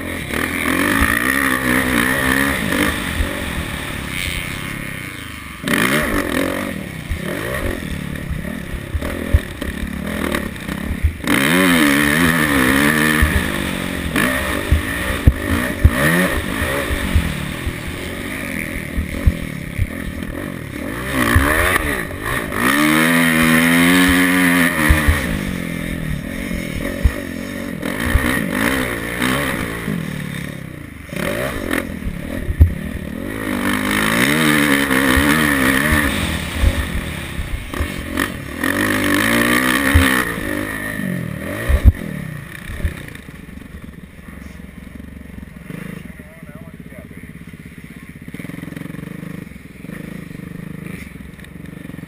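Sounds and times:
dirt bike engine revving: 0.0 - 52.0
bike knocking over bumps: 39.9 - 40.2.

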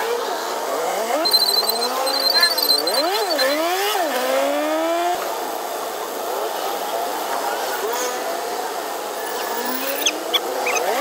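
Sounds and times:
high rapid beeping: 1.2 - 3.6
vehicle engine pulling: 1.2 - 3.7.

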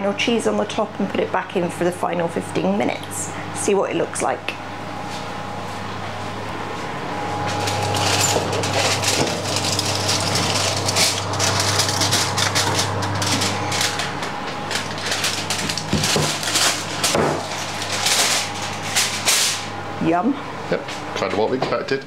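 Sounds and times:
steady low hum: 0.0 - 22.0
aluminium foil crinkling: 7.5 - 19.7.

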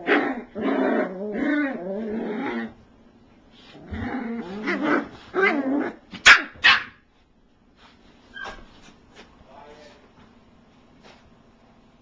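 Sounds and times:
puppies play-growling: 0.0 - 2.9, 3.5 - 6.6
puppy barking sharply: 6.2 - 7.0.

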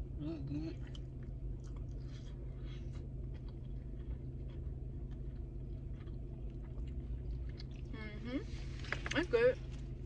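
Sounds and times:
low car interior hum: 0.0 - 10.0
mouth chewing clicks and smacks: 0.8 - 7.9.

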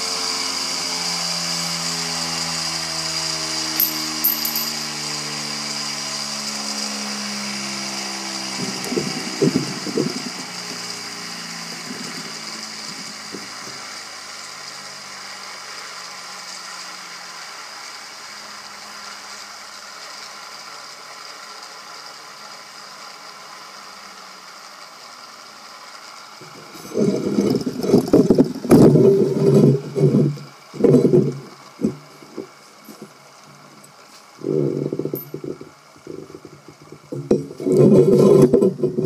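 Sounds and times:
steady high whine: 0.0 - 39.0
loud rattling knocks: 8.6 - 10.8.

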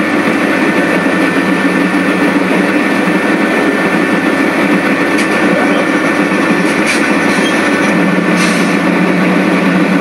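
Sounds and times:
diesel locomotive engines running: 0.0 - 10.0.

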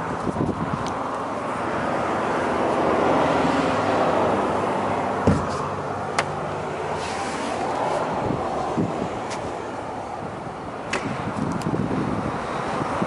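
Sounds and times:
vehicle rumble passing: 0.0 - 13.0
dull knocks: 5.2 - 5.6.

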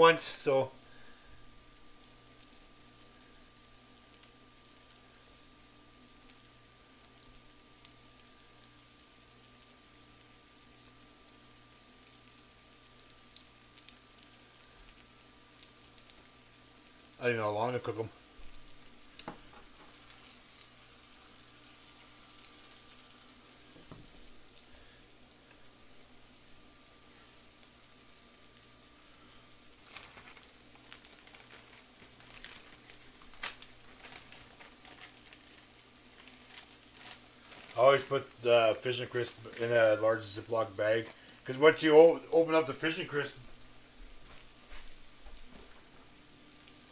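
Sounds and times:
steady low hum: 0.0 - 46.8
roe frying in butter: 0.0 - 46.9
crackles and pops: 0.4 - 46.9
plastic bag crinkling: 29.2 - 42.4
plastic bag snap: 29.8 - 35.4.

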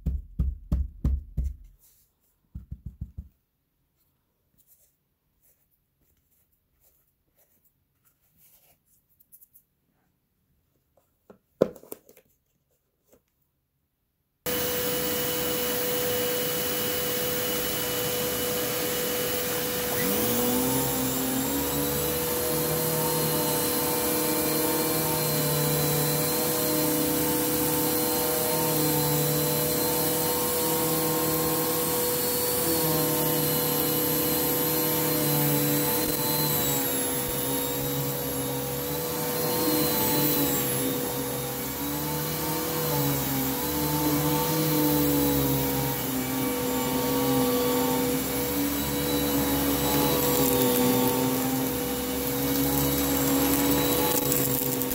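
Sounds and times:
vacuum cleaner on carpet: 14.5 - 54.9.

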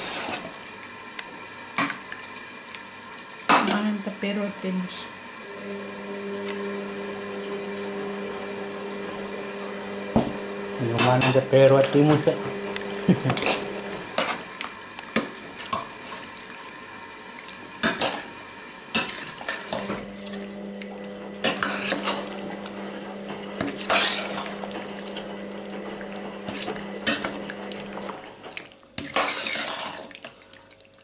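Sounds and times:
utensil clinking and scraping cookware: 10.8 - 12.3, 13.1 - 14.4, 21.4 - 22.4.

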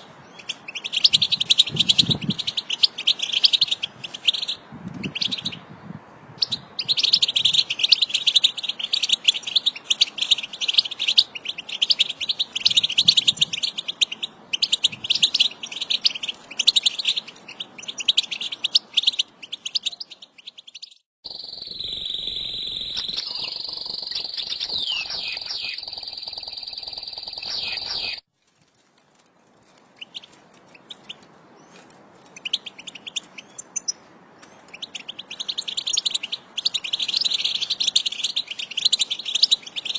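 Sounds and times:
finches twittering: 21.3 - 28.2.

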